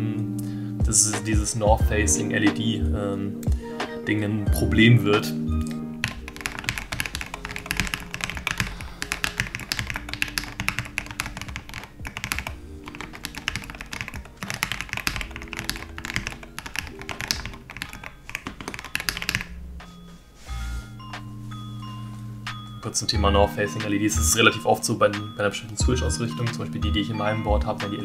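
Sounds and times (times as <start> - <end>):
mechanical keyboard typing: 6.0 - 19.5.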